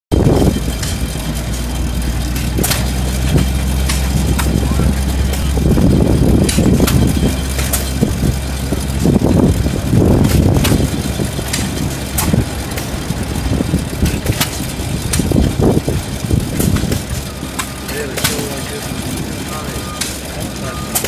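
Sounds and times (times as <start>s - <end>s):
cement mixer drum turning: 0.1s - 21.0s
stationary gas engine running: 0.1s - 21.0s.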